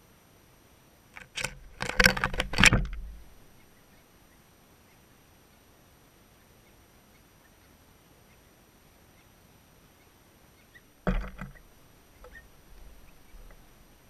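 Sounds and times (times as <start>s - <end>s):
faint outdoor hiss: 0.0s - 14.0s
loud knock with clatter: 11.1s - 11.6s.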